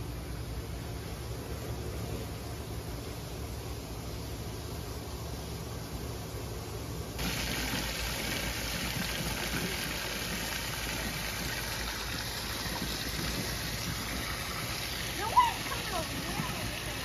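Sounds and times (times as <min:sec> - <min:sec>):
hose water gushing into pool: 0:07.2 - 0:17.0.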